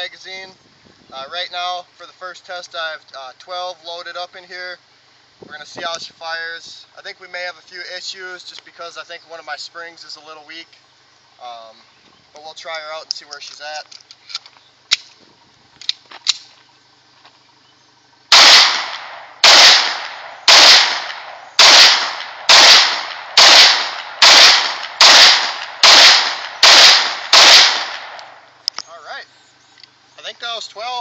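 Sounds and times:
pistol shots: 18.3 - 28.4.

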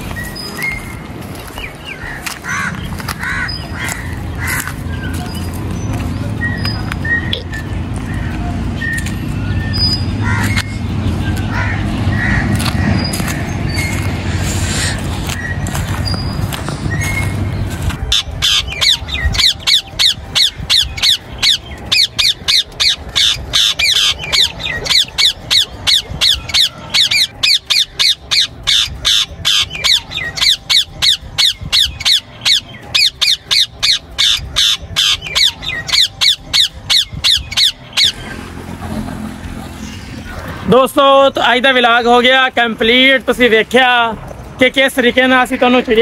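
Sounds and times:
parakeets squawking: 0.0 - 46.0.

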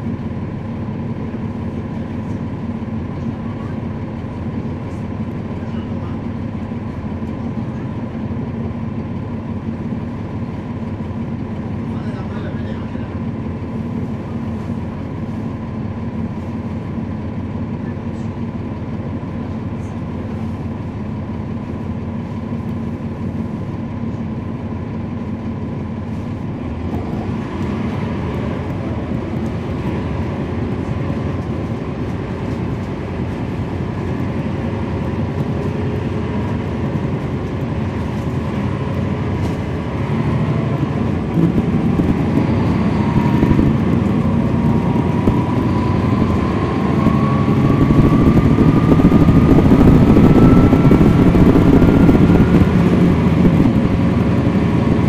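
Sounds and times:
bus diesel engine running: 0.0 - 55.0
rising whine: 34.1 - 55.0.

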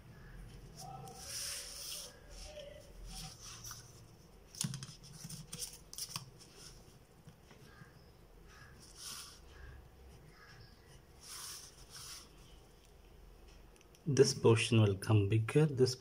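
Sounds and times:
paper rustling: 0.7 - 6.9.

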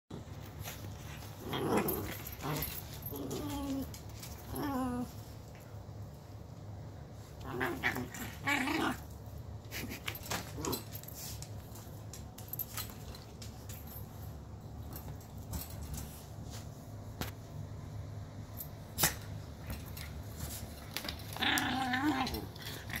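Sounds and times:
dog play growling: 0.2 - 5.7, 7.2 - 11.3, 19.1 - 23.0.

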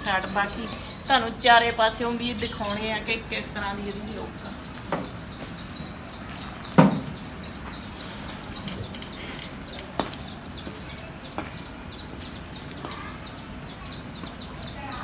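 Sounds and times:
small birds chirping: 0.0 - 15.0
sharp thump: 6.8 - 7.1.

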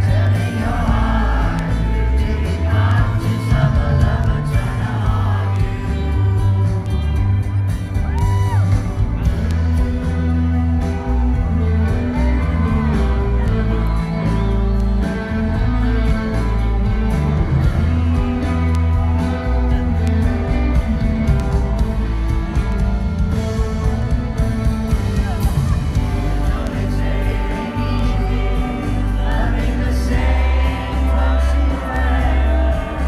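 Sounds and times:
man singing: 0.0 - 6.9, 25.1 - 33.0
bass guitar: 0.0 - 33.0
drums: 0.0 - 33.0
electric guitars: 0.0 - 33.0.

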